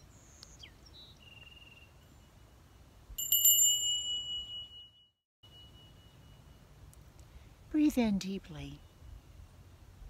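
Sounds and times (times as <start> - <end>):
bird chirping: 0.0 - 2.4
meditation bell ringing: 3.2 - 6.8.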